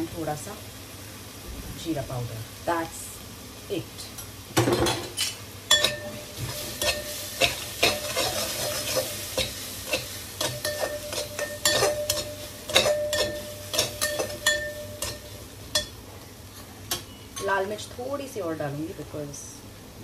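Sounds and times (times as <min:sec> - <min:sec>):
masala sizzling in a pan: 0:00.0 - 0:20.0
spoon knocking and scraping pan: 0:04.6 - 0:16.0.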